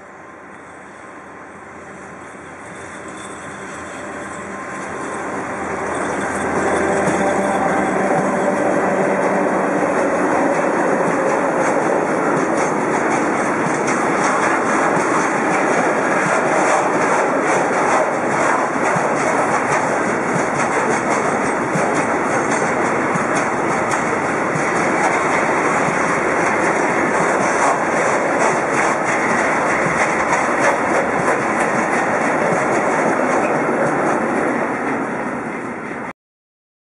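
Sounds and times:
train wheels rumbling and clattering: 0:00.0 - 0:36.1.

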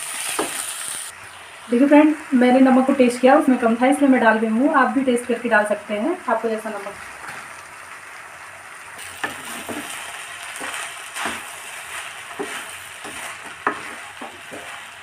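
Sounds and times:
rice sizzling in a pan: 0:00.0 - 0:04.0, 0:06.4 - 0:15.0
spatula scraping a metal pan: 0:10.6 - 0:15.0.

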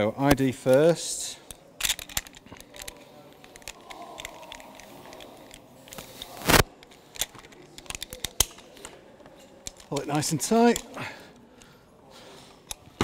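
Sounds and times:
metallic clicks and rattles: 0:01.4 - 0:11.0.

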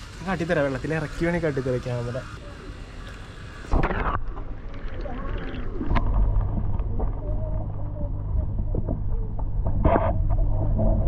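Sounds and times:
muffled underwater rumble: 0:03.6 - 0:11.0.

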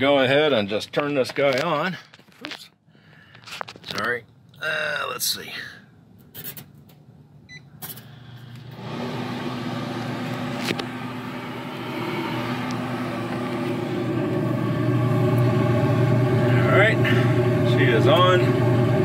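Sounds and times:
electric motor hum: 0:08.5 - 0:19.0.

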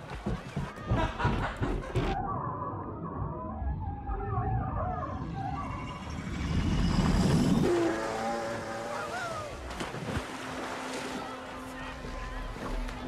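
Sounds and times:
jet ski engine and spray: 0:07.7 - 0:09.3
muffled underwater splashing: 0:07.7 - 0:13.0.

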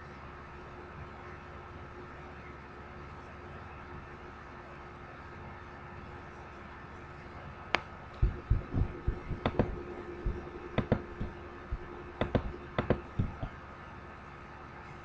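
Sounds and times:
steady electrical hum: 0:00.0 - 0:15.0
sharp clicks: 0:07.8 - 0:13.5
soft low thumps: 0:08.2 - 0:13.5.

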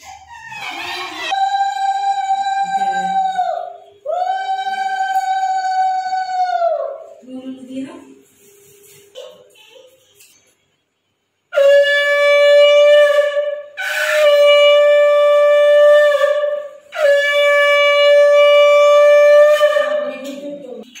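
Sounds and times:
conch shell blasts: 0:11.6 - 0:20.2.

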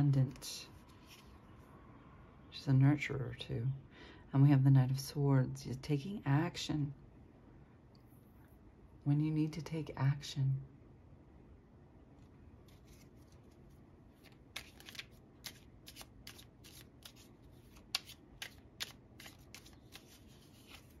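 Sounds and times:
cards being shuffled: 0:00.3 - 0:01.4, 0:12.6 - 0:21.0.

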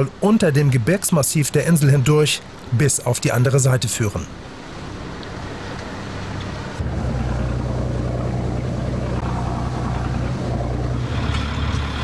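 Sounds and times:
water noise: 0:00.0 - 0:12.0
motorboat engine running: 0:05.2 - 0:12.0.

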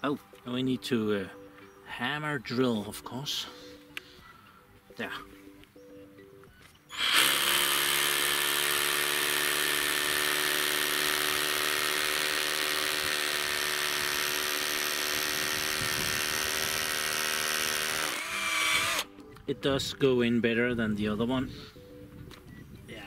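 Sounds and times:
hammer drill drilling into rock: 0:06.9 - 0:19.1.

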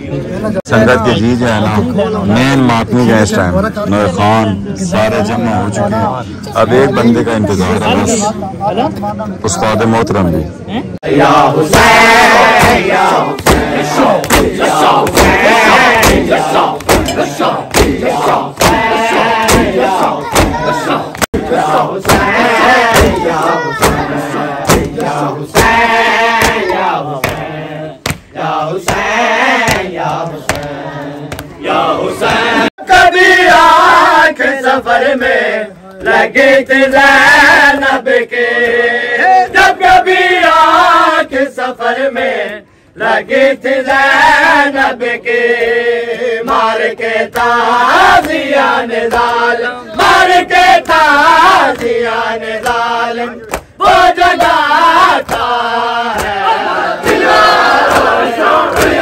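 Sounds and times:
voices chanting along: 0:11.0 - 0:59.0
hands slapping on chests: 0:12.6 - 0:15.4, 0:16.0 - 0:25.8, 0:26.4 - 0:28.3, 0:28.9 - 0:31.5, 0:47.3 - 0:49.4, 0:50.8 - 0:52.0, 0:52.6 - 0:53.8, 0:55.0 - 0:59.0.

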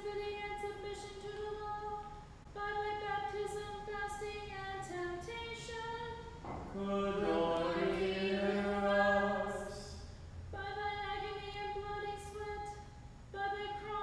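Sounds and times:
voices chanting a liturgy: 0:06.5 - 0:10.0.

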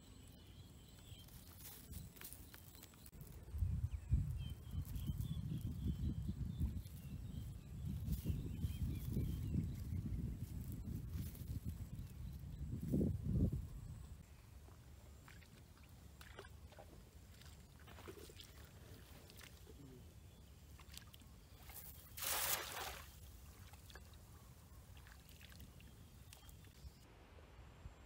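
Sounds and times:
wading through shallow water: 0:15.0 - 0:26.8
cast net splashing on water: 0:20.8 - 0:24.1.

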